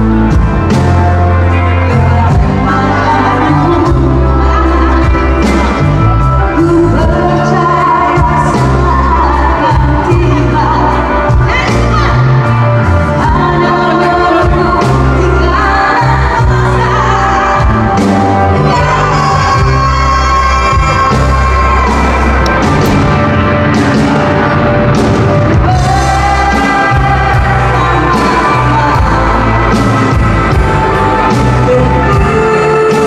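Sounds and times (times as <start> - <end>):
woman singing pop song: 0.0 - 23.2, 25.5 - 33.0
live band playing: 0.0 - 33.0.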